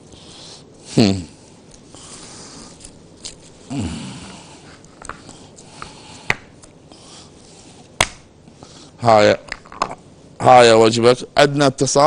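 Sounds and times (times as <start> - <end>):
person humming: 3.7 - 4.6.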